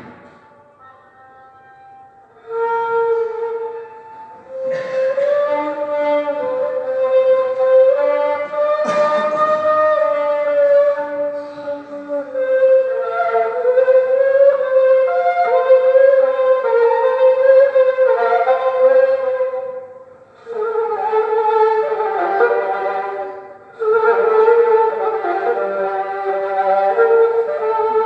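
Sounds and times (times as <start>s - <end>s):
bowed fiddle slow melody: 0.0s - 8.8s.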